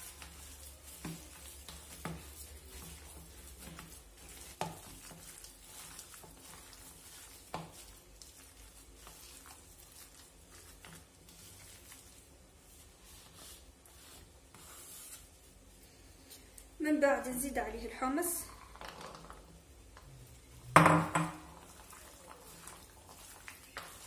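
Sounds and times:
wet squishing of raw meat: 0:00.0 - 0:13.0, 0:21.6 - 0:24.0.

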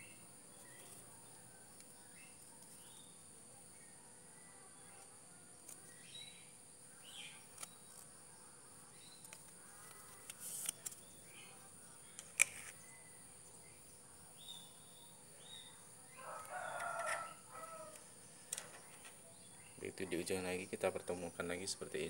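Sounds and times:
steady high hiss: 0:00.0 - 0:22.0
rooster crowing: 0:16.1 - 0:18.1.

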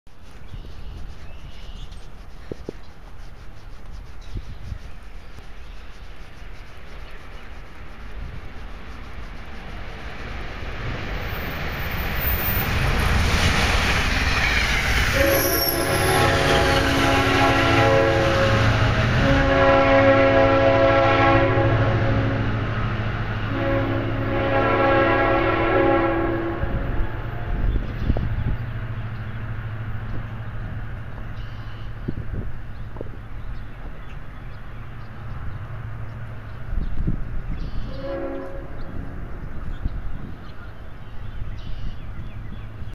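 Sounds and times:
wind rumble on microphone: 0:00.1 - 0:42.9
train horn blasts: 0:15.1 - 0:22.7, 0:23.4 - 0:28.4, 0:37.8 - 0:39.1
faint bird chirps: 0:27.7 - 0:29.4, 0:31.3 - 0:35.4, 0:36.5 - 0:38.0, 0:39.7 - 0:42.8.

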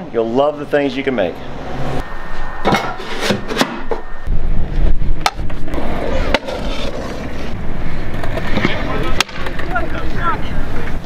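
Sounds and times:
scooter wheels rolling on concrete: 0:04.6 - 0:11.0
scooter clacking on ground: 0:08.1 - 0:11.0.

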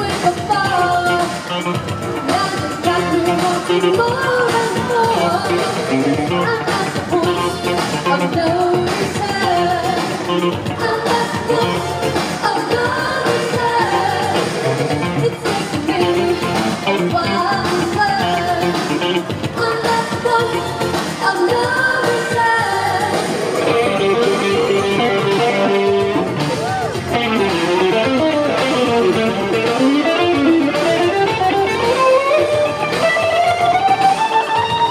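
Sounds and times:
woman singing into microphone: 0:00.0 - 0:01.6, 0:02.2 - 0:26.1
electric guitar: 0:00.0 - 0:34.9
synth-pop band playing: 0:00.0 - 0:34.9.

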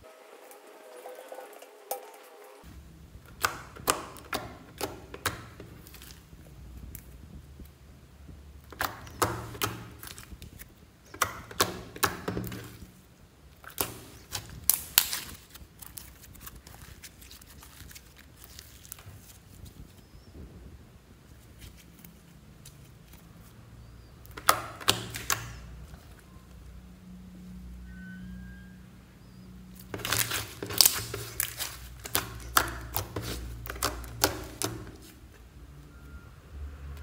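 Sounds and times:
slime sticky clicks and pops: 0:03.3 - 0:06.2, 0:13.6 - 0:15.4, 0:24.3 - 0:25.6.

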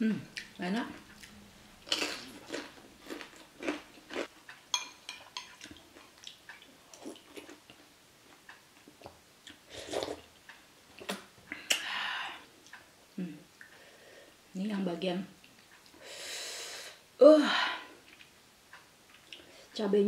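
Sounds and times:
chewing and mouth noises: 0:00.4 - 0:04.3, 0:05.4 - 0:07.8
spoon clinking on ceramic bowl: 0:04.7 - 0:05.6.

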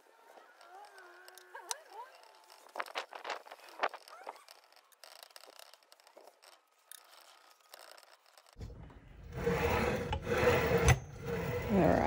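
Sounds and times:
saw head rolling rumble: 0:08.1 - 0:12.0
steel wool scratching metal: 0:09.2 - 0:12.0.

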